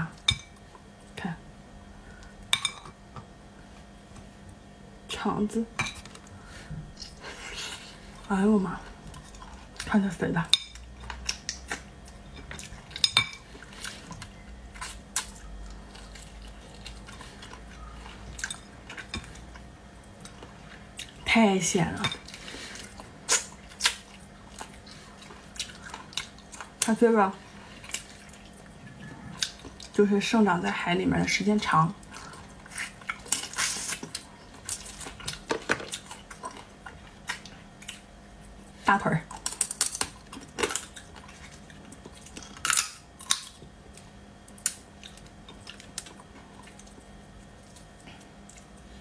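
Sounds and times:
soft wet chewing: 6.0s - 10.0s, 10.7s - 21.3s, 22.2s - 30.1s, 32.0s - 49.0s
crab shell crackling and snapping: 39.3s - 47.0s
crab shell cracking: 39.4s - 41.0s.

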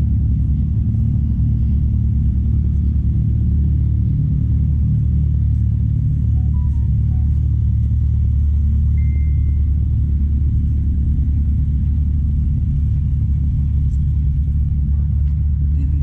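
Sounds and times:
car engines idling: 0.0s - 16.0s
brief high tone: 9.0s - 9.7s.

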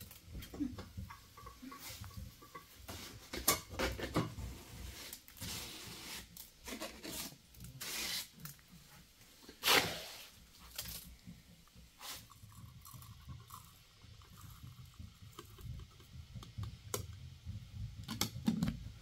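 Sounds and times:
scraping and rubbing strokes: 4.4s - 8.6s, 9.5s - 10.4s.

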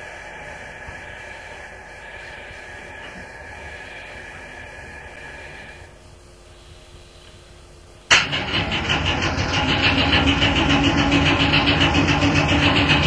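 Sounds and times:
faint electric hum: 0.0s - 13.0s
steady low hum: 0.0s - 13.0s
electric train rattling: 8.1s - 13.0s.

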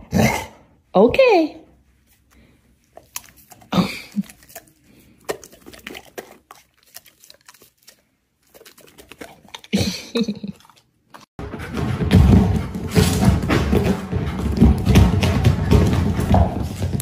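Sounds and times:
dog chewing crunchy treat: 2.4s - 11.3s.

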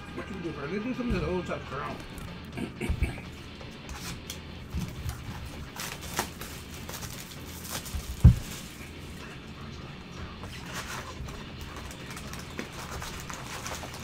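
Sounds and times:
cardboard rustling and tapping: 4.7s - 8.7s
box thump: 8.0s - 8.6s.

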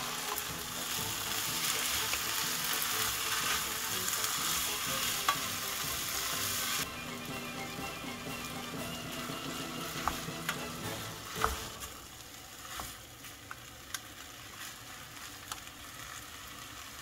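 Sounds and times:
food sizzling in frying pan: 0.0s - 17.0s
utensil tapping pan: 3.1s - 6.8s, 8.3s - 11.8s.

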